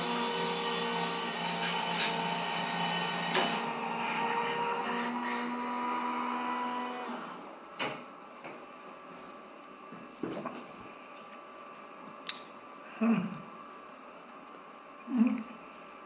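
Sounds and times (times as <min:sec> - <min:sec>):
drinks machine motor whirring: 0:00.0 - 0:07.6.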